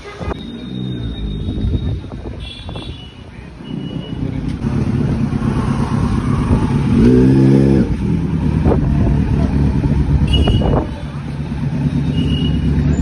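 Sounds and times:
motorcycle engine revving: 0:03.7 - 0:13.0.

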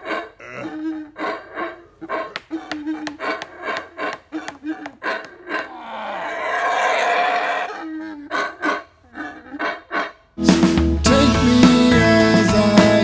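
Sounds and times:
howler monkey rough roar: 0:00.0 - 0:10.2.

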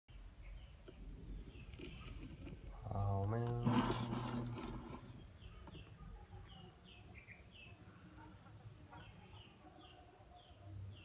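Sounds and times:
faint bird chirping: 0:00.1 - 0:11.0.

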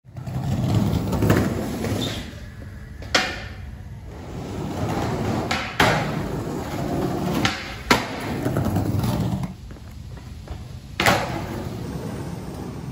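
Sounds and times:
skateboard wheels rolling on bricks: 0:00.1 - 0:12.9
skateboard clacks: 0:03.0 - 0:03.6, 0:04.7 - 0:09.6, 0:10.6 - 0:12.9.

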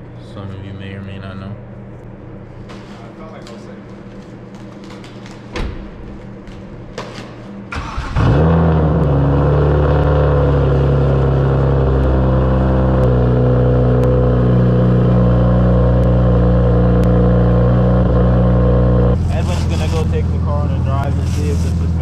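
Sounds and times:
car engine starting: 0:07.7 - 0:22.0
car engine idling: 0:07.8 - 0:22.0.

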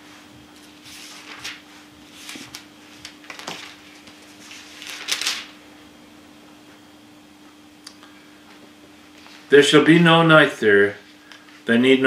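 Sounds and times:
faint steady hum: 0:00.0 - 0:12.0
book pages rustling: 0:00.6 - 0:05.5.

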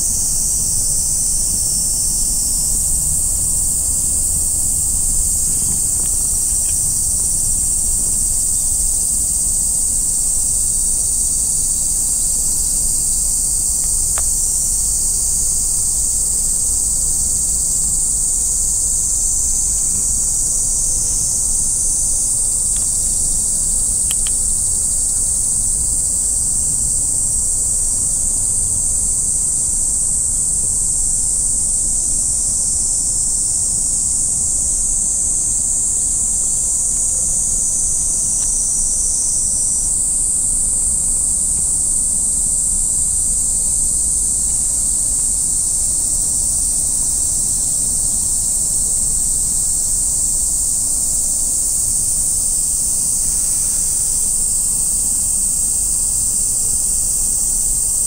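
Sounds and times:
high-pitched insect chorus: 0:00.0 - 0:58.0
faint ticks: 0:05.0 - 0:07.2, 0:12.2 - 0:15.0, 0:22.5 - 0:24.7, 0:38.2 - 0:38.6.

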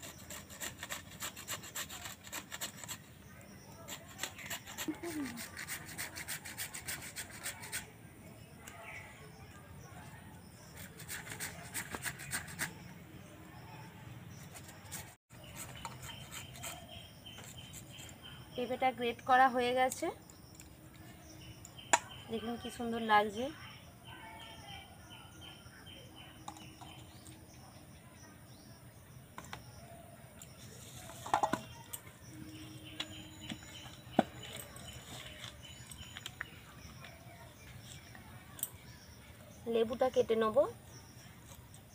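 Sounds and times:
metal grater rasping: 0:00.0 - 0:03.1, 0:03.8 - 0:07.8.

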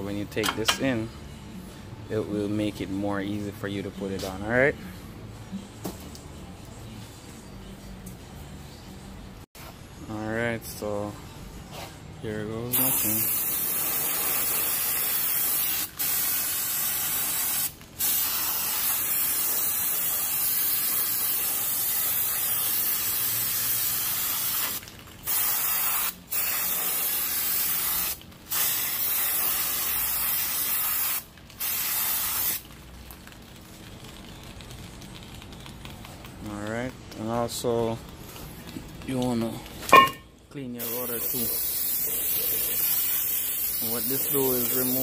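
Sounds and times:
aerosol can spraying: 0:12.7 - 0:32.6, 0:40.8 - 0:45.0.

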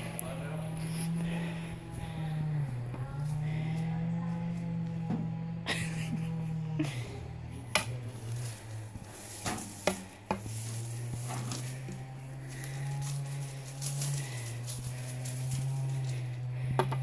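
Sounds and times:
steady low hum: 0:00.0 - 0:17.0
scuffing on gravel and rocks: 0:08.1 - 0:16.4.

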